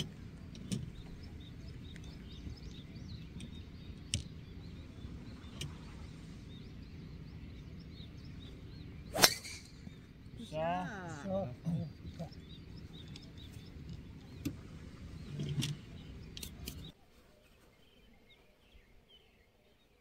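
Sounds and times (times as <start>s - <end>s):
birds chirping: 0.0s - 20.0s
golf club striking ball: 9.0s - 9.8s.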